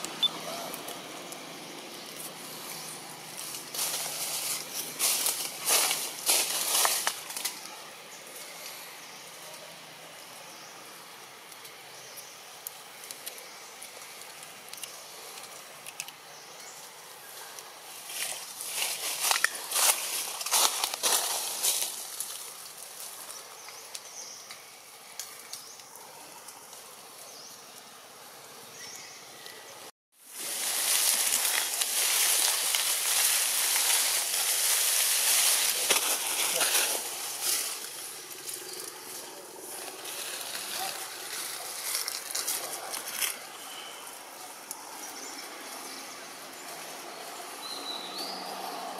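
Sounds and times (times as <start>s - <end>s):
steady hiss: 0.0s - 47.6s
rustling: 30.2s - 43.8s
faint crackles: 30.3s - 46.8s.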